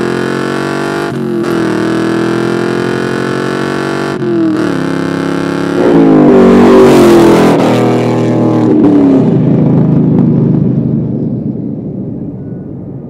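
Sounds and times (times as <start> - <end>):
car exhaust accelerating: 0.0 - 13.0.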